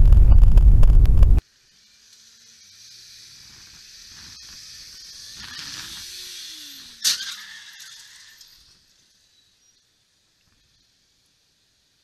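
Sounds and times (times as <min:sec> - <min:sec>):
rushing wind: 0:00.0 - 0:01.4.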